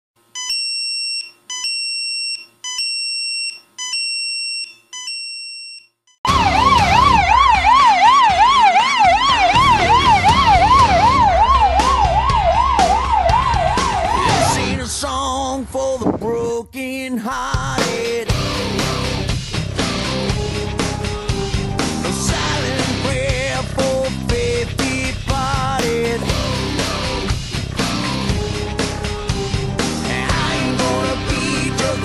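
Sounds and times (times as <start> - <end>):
phone alert beeping: 0.4 - 6.0
fire engine siren yelping: 6.3 - 14.9
low rumble: 9.6 - 17.0.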